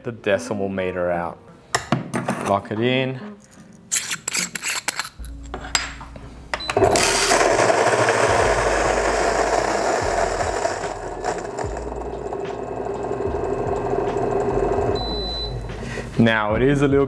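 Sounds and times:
coffee grinder grinding beans: 6.8 - 15.0.

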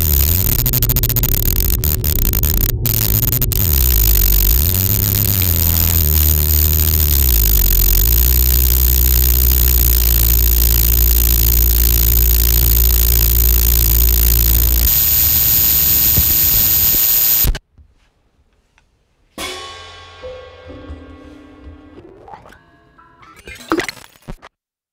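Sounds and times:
deep bass drone: 0.0 - 17.5
quiet electronic tones: 0.0 - 17.6
dense noise wall: 0.0 - 23.4
single ringing hit: 19.4 - 23.2.

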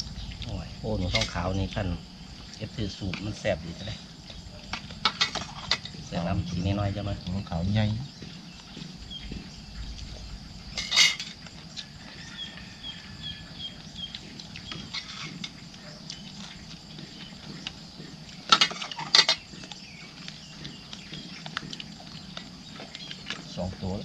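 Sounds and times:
high insect drone: 0.0 - 24.0
cutlery clinking against dishes: 10.8 - 11.4, 18.5 - 19.5.

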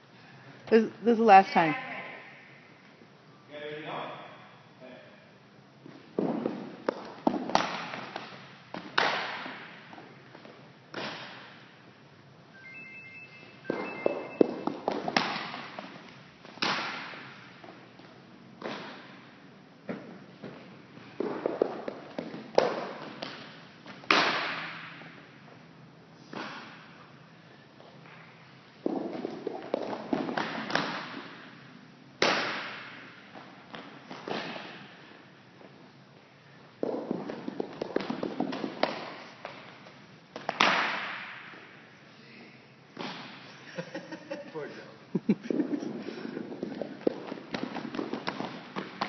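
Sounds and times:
ball bouncing on wooden floor: 6.2 - 11.2, 13.6 - 17.8, 21.2 - 24.9, 28.8 - 31.5, 36.8 - 40.8, 46.5 - 49.0
loud sharp smack echoing: 24.1 - 25.0, 40.5 - 41.5.

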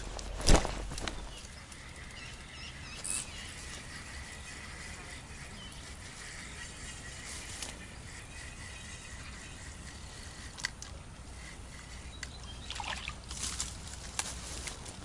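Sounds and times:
water splashing: 12.7 - 13.2.

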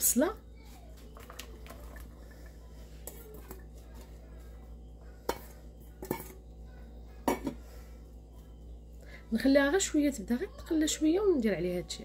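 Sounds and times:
metal bowl knocking clay dish: 5.2 - 6.4, 7.2 - 7.6
onions tipped into dish: 5.3 - 6.4.

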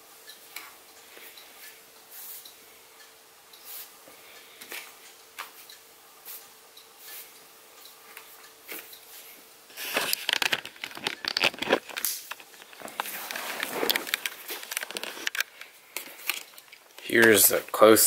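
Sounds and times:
faint steady hum: 0.0 - 18.0
camera handling crackling: 10.0 - 15.5.

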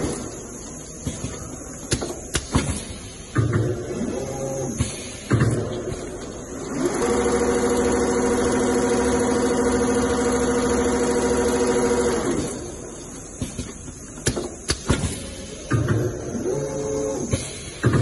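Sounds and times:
sewing machine motor whine: 6.7 - 12.8.

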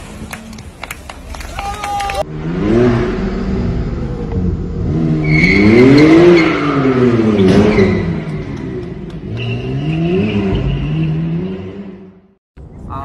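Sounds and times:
sports car engine revving: 2.3 - 12.3.

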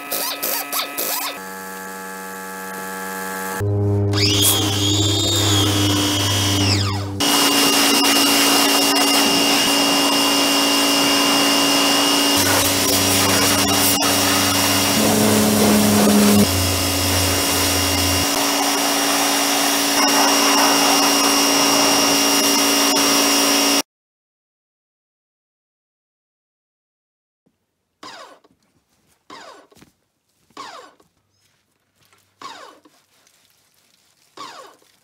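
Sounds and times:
pressure washer motor humming: 0.1 - 23.8
water jet hissing: 4.2 - 22.8.

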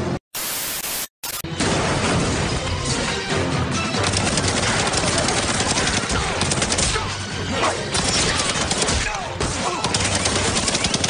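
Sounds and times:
music: 1.5 - 11.0
cartoon automatic gunfire: 4.1 - 7.1, 7.9 - 11.0.

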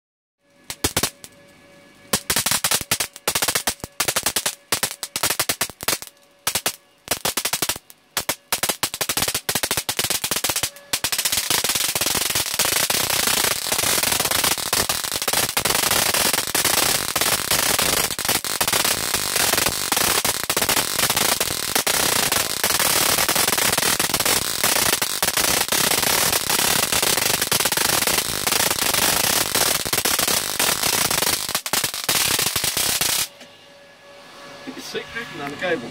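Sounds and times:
electric arcs crackling: 0.6 - 1.5, 2.1 - 33.3.

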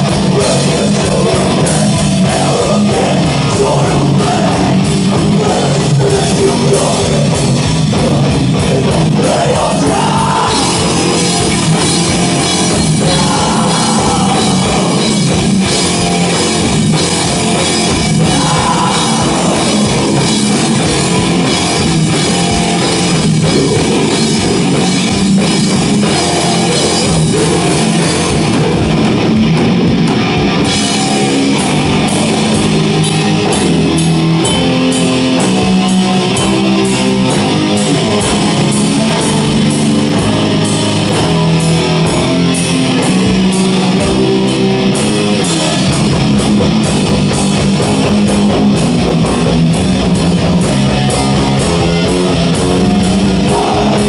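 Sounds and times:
distorted electric guitars: 0.0 - 54.0
pounding drum kit: 0.0 - 54.0.

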